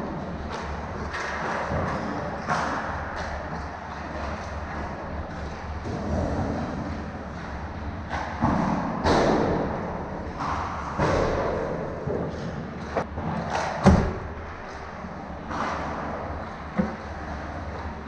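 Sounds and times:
puck and stick knocks: 0:08.1 - 0:14.8.

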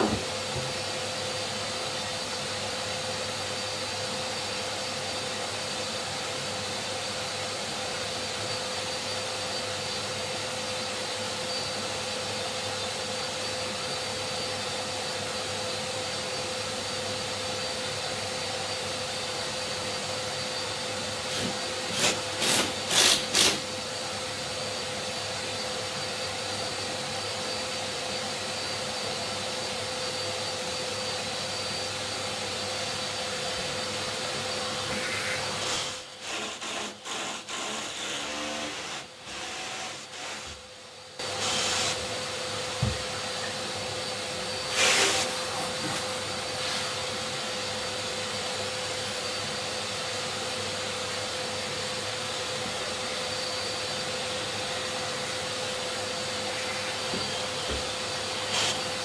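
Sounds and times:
workshop vacuum running: 0:00.0 - 0:59.0
short loud vacuum bursts: 0:41.2 - 0:42.1, 0:44.7 - 0:45.8.

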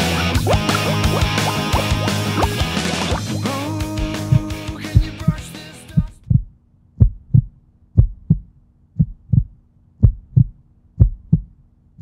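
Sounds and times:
rock music: 0:00.0 - 0:06.2
heartbeat thumps: 0:00.4 - 0:03.4, 0:04.0 - 0:11.6.

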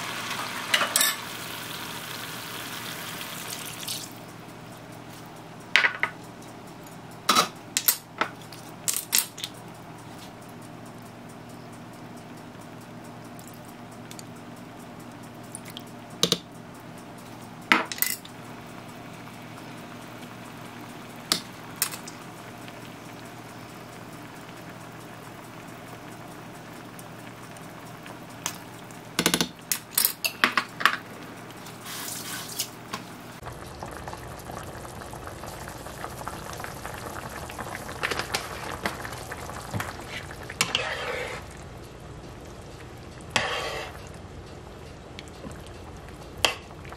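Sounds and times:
broth simmering and sizzling: 0:00.0 - 0:46.9
utensils clinking against pan: 0:00.7 - 0:01.2
plastic spatula scraping pan: 0:43.4 - 0:44.0.

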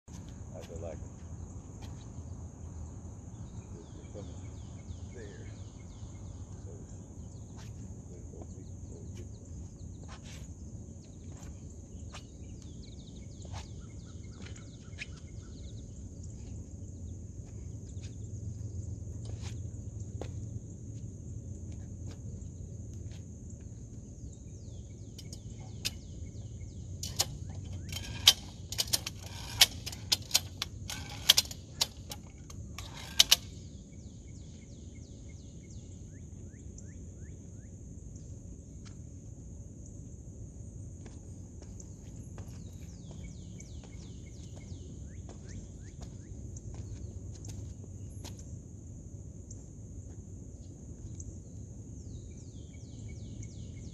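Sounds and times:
high insect drone: 0:00.1 - 0:53.9
bird chirps: 0:03.3 - 0:20.2, 0:41.8 - 0:48.3, 0:51.1 - 0:53.9.

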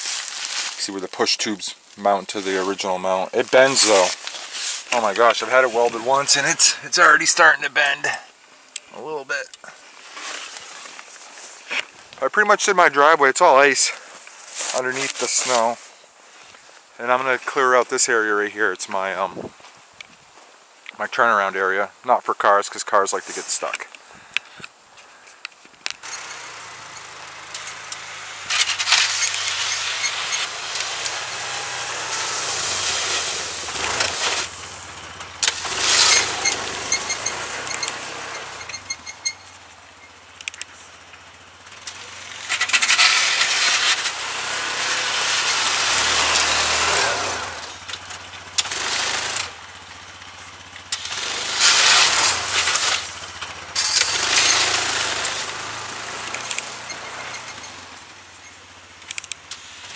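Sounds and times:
utility vehicle engine droning: 0:00.6 - 0:08.2, 0:26.0 - 0:59.9
rushing noise of plowed snow: 0:02.2 - 0:07.9, 0:26.0 - 0:39.0, 0:41.4 - 0:58.1.

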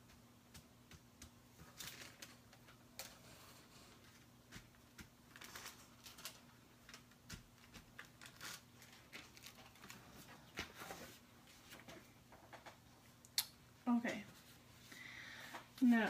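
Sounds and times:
paper rustling and tapping: 0:00.0 - 0:03.2, 0:03.8 - 0:12.8
low electrical hum: 0:00.0 - 0:16.0.

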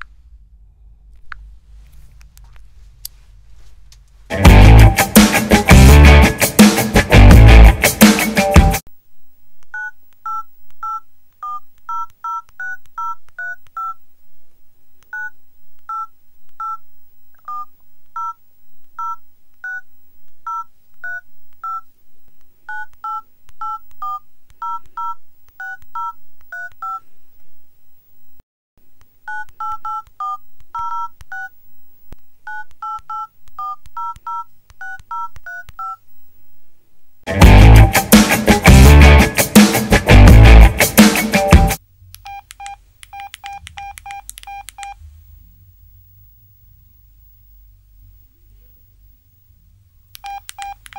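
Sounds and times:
two-tone keypad beeps: 0:42.3 - 0:45.0, 0:50.2 - 0:50.9.

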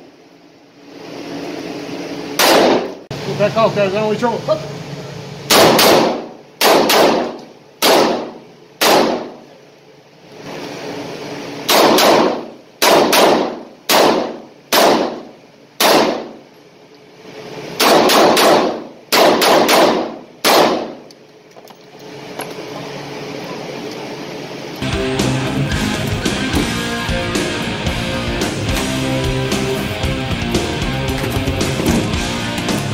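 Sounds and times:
revolver shots with echo: 0:02.4 - 0:03.0, 0:05.5 - 0:09.4, 0:11.7 - 0:16.4, 0:17.8 - 0:21.0.

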